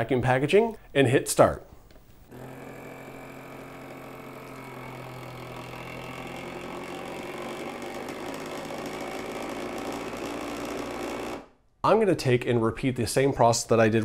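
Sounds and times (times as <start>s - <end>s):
vacuum sealer pump humming: 2.3s - 11.5s.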